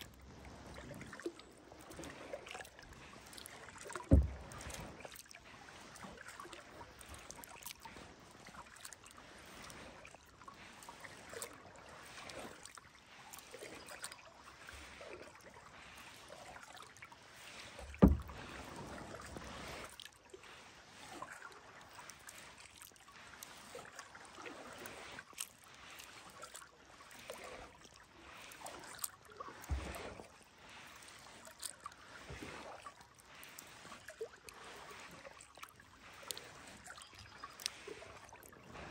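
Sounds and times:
paddle water swishing: 0:00.0 - 0:38.9
low thump: 0:04.1 - 0:04.8, 0:17.9 - 0:18.7.

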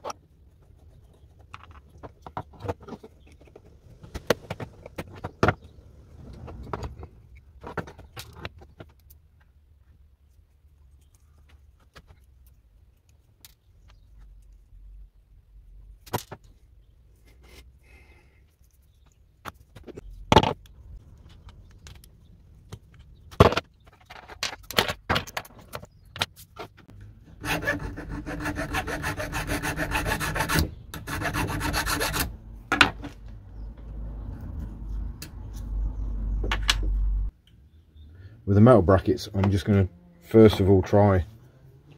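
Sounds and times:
hand tool rasping on steel: 0:27.4 - 0:32.3.

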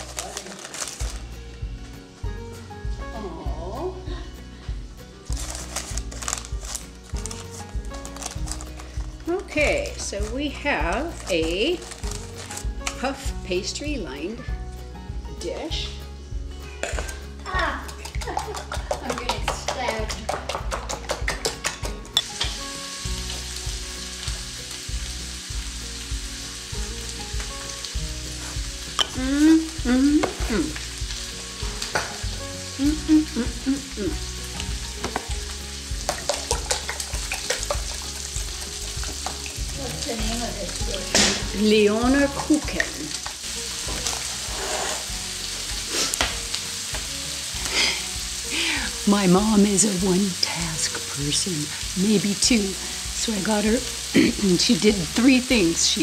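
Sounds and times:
food sizzling in a skillet: 0:00.0 - 0:56.0
clicks and taps in mixing bowl: 0:17.8 - 0:22.0
person humming: 0:29.0 - 0:31.0, 0:32.6 - 0:34.3.

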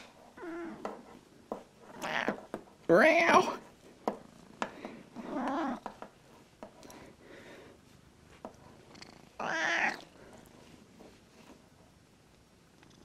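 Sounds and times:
cat calling: 0:02.0 - 0:02.4, 0:09.4 - 0:10.0
cat purring: 0:08.6 - 0:10.5, 0:12.7 - 0:13.0.

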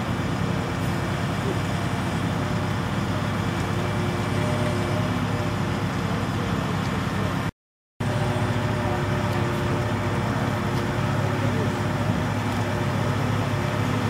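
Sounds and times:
forklift engine running: 0:00.0 - 0:14.0.

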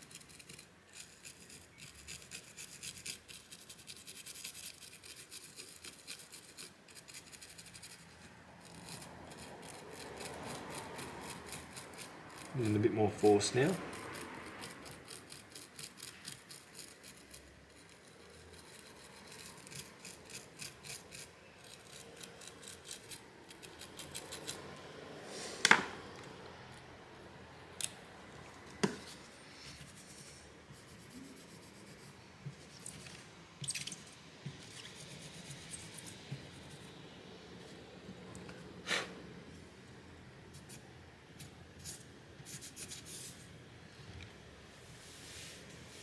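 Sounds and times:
toothbrush scrubbing circuit board: 0:00.0 - 0:24.7.

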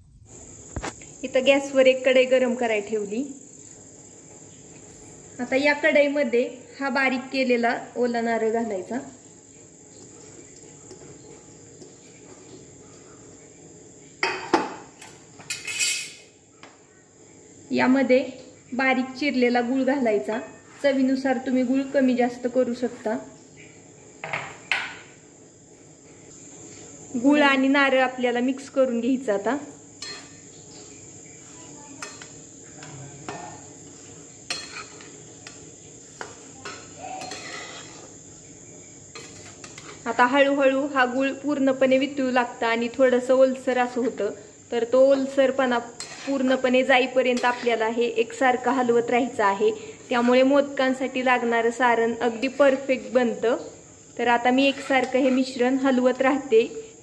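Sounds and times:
spatula scraping steel pan: 0:15.5 - 0:16.2, 0:33.8 - 0:35.6, 0:36.2 - 0:38.2, 0:39.1 - 0:40.1, 0:46.0 - 0:46.7, 0:47.3 - 0:47.9, 0:54.6 - 0:55.6
coconut scraped off steel plate: 0:37.1 - 0:38.1, 0:46.0 - 0:46.5.

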